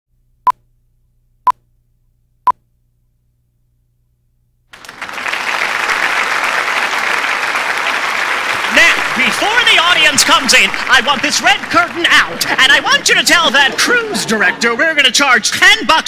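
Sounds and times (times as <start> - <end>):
audience applause: 4.7 - 14.2.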